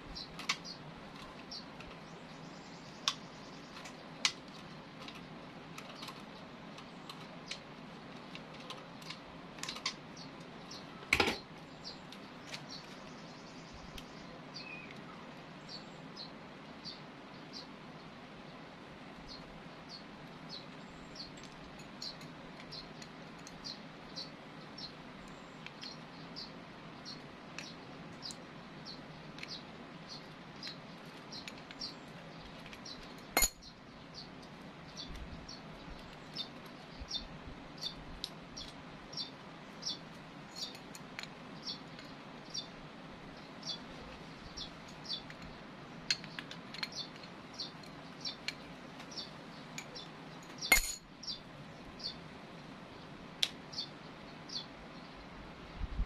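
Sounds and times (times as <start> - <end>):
low steady hum: 0.0 - 56.0
sharp clinks: 33.3 - 33.7, 49.8 - 51.1.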